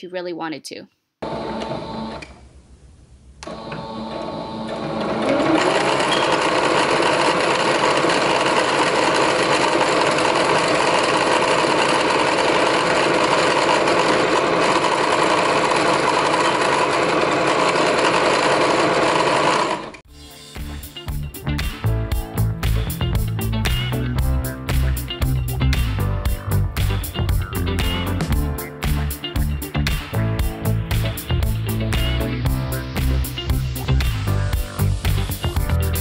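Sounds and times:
sewing machine stitching: 3.4 - 20.0.

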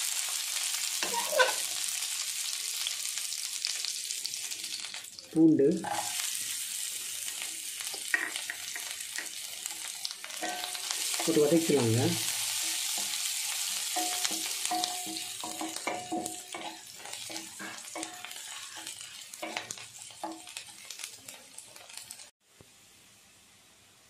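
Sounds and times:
food sizzling in hot oil: 0.0 - 24.0
wooden spatula scraping pan: 1.0 - 1.7, 14.0 - 22.1.

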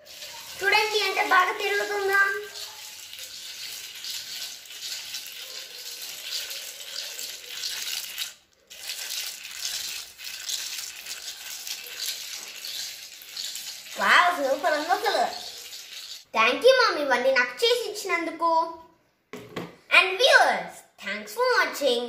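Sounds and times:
dry scratchy grinding: 8.0 - 16.3.

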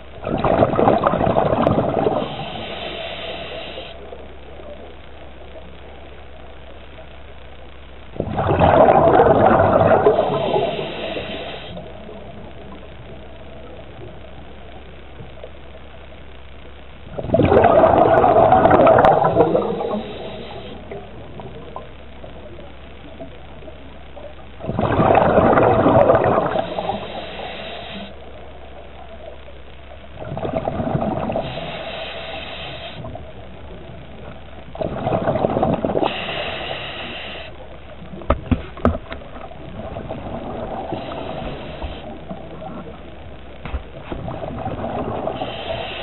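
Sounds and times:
low steady underwater background: 0.0 - 46.0
underwater exhaust bubbles: 0.0 - 46.0.

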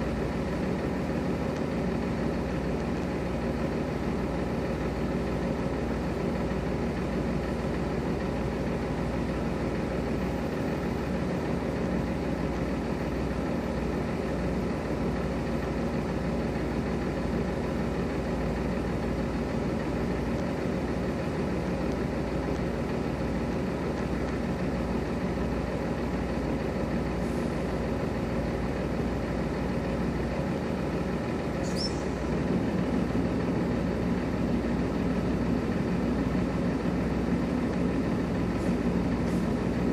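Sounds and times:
truck diesel engine idling: 0.0 - 39.9
high squeal: 31.6 - 32.2.

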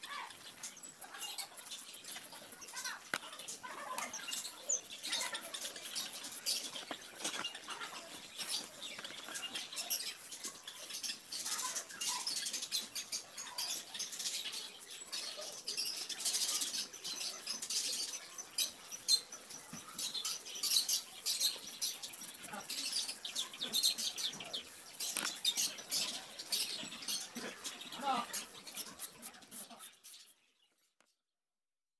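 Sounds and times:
pencil scratching on paper: 28.3 - 30.4.

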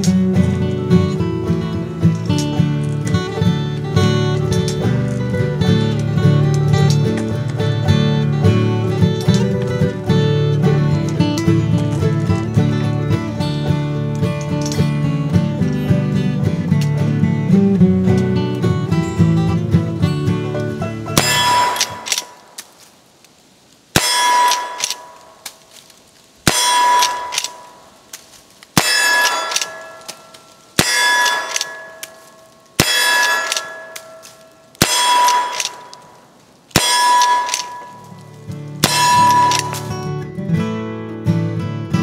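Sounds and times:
acoustic guitar music: 0.0 - 22.9, 23.9 - 42.0
metallic clang ringing: 21.2 - 22.5, 24.0 - 25.4, 26.5 - 27.9, 28.8 - 40.1
rifle shots: 21.2 - 22.5, 24.0 - 25.5, 26.4 - 28.0, 28.8 - 38.2, 38.8 - 39.9.

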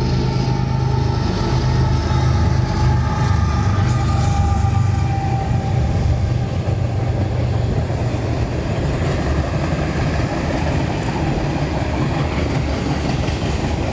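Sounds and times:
freight train rolling past: 0.0 - 13.9
steel wheels rumbling on track: 0.0 - 13.9.

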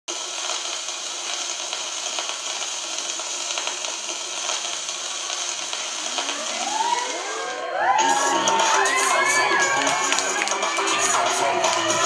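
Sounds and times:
audience clapping: 0.2 - 12.0
crowd murmur: 5.9 - 12.0.

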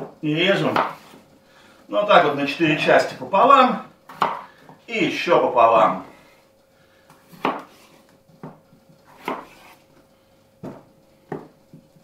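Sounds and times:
knife cutting on wooden board: 7.2 - 9.9.

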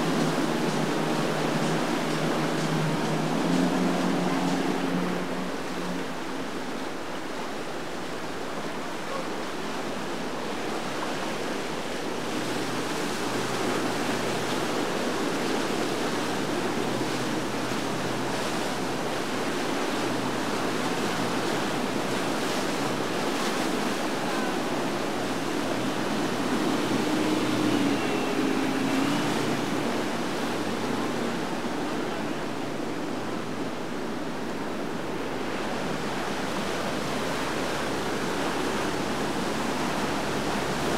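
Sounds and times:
boat wakes washing: 0.0 - 40.9
churning water rushing: 0.0 - 40.9.

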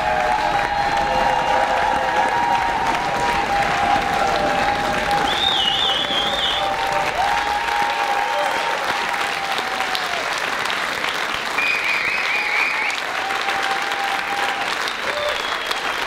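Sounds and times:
audience applauding: 0.0 - 16.0
crowd cheering: 0.0 - 16.0
warbling whistle: 5.2 - 6.8.

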